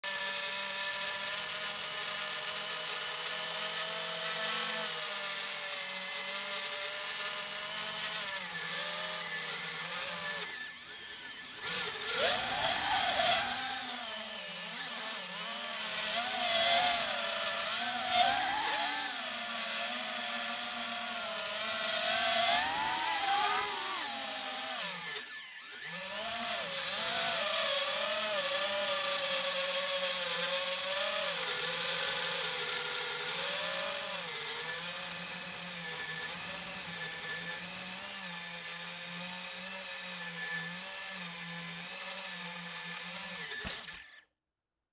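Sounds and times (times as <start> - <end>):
drone propellers whining: 9.2 - 28.6.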